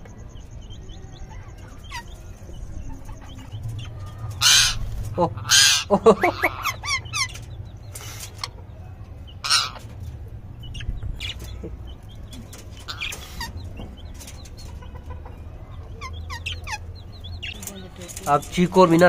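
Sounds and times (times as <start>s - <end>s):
parakeets chirping: 0.0s - 19.0s
harsh parrot squawks: 4.4s - 7.2s.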